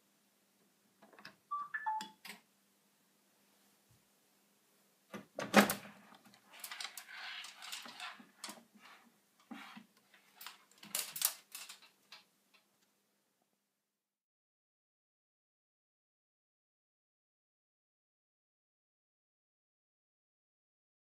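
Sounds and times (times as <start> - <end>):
drawer rustling slide: 5.7 - 11.2.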